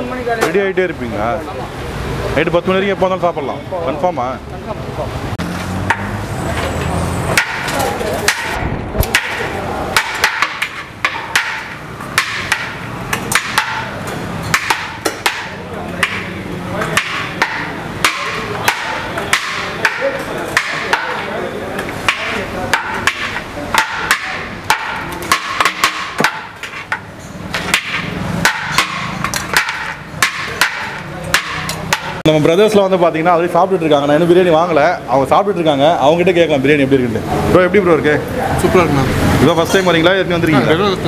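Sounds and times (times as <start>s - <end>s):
metal ladle clanking on steel pot: 7.4s - 32.2s
metal spoon scraping a pot: 26.0s - 28.1s.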